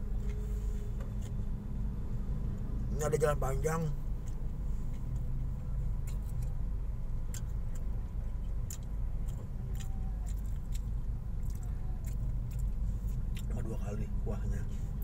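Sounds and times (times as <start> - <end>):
car engine idling rumble: 0.0 - 15.0.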